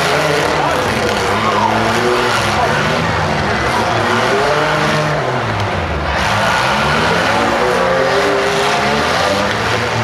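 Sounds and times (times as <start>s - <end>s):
car engines revving loudly: 0.0s - 10.0s.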